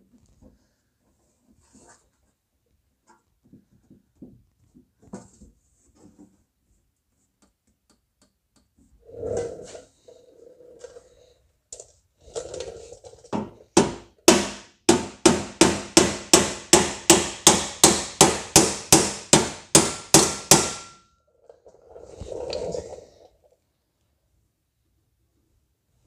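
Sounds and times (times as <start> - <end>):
hammer ringing on steel: 14.3 - 21.1.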